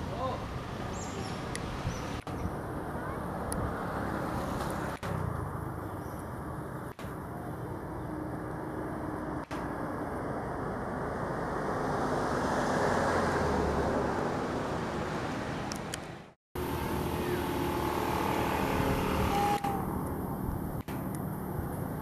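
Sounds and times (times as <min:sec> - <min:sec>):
outdoor background noise: 0:00.0 - 0:22.0
faint short whine: 0:17.1 - 0:20.0.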